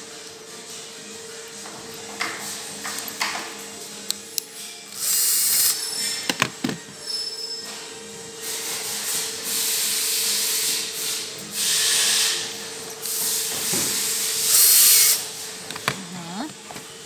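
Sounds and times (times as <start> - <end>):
cordless drill driving screw: 5.0 - 5.8, 14.5 - 15.2.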